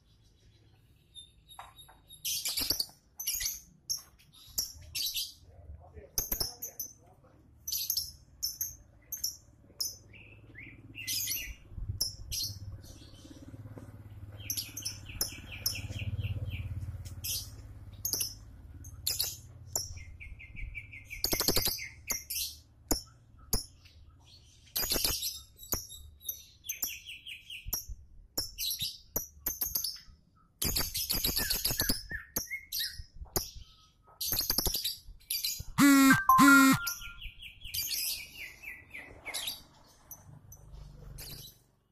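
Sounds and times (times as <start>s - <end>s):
lovebird chirping and trilling: 35.6s - 37.4s.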